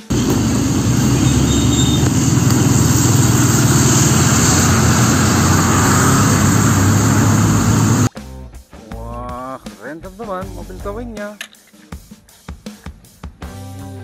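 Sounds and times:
diesel truck driving past: 0.0s - 8.1s.

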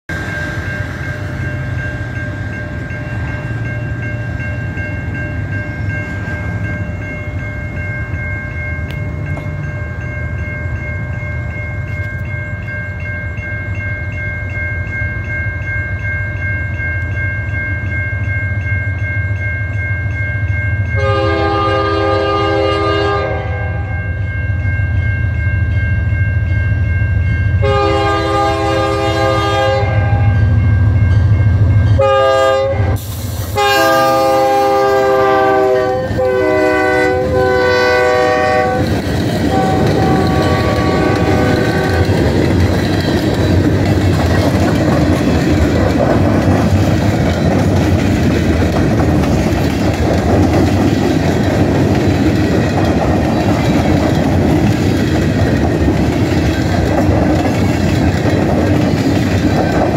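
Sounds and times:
diesel locomotive engine rumbling: 0.1s - 59.9s
locomotive air horn blasts: 21.0s - 24.0s, 27.6s - 30.4s, 32.0s - 38.9s, 39.5s - 42.2s.

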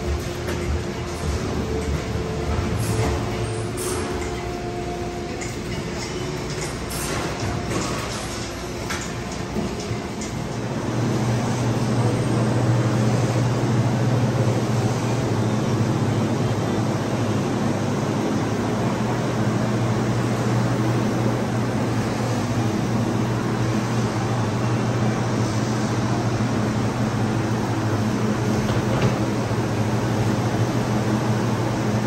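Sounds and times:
low machinery hum: 0.0s - 32.0s.

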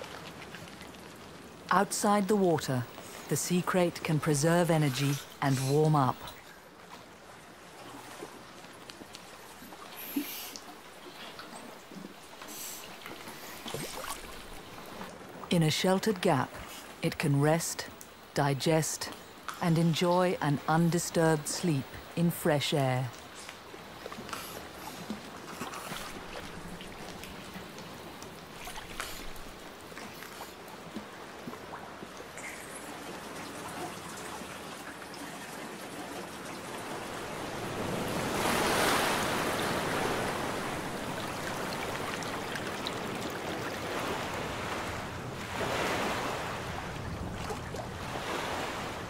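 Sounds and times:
water clicks and trickles: 0.0s - 46.0s, 46.8s - 48.1s
large waves surging in: 0.0s - 49.0s
surf washing against rocks: 36.8s - 49.0s.

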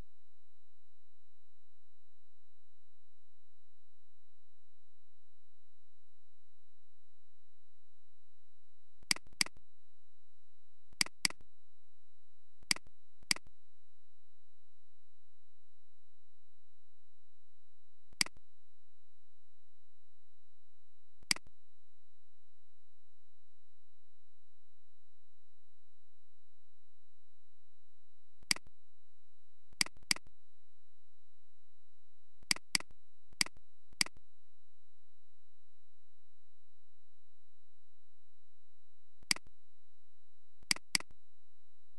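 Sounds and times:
faint steady hum: 0.0s - 41.9s
computer mouse clicking: 9.1s - 9.6s, 11.0s - 11.4s, 18.2s - 18.4s, 29.8s - 30.3s, 32.5s - 34.2s, 40.7s - 41.1s.

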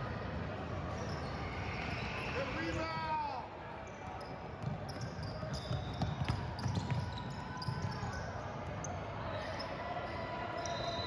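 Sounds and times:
basketball bouncing on hardwood: 4.6s - 7.1s.

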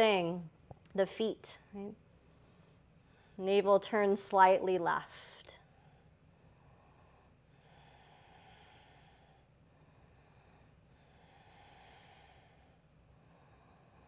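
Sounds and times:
slow breathing: 2.1s - 3.4s, 5.6s - 14.0s.

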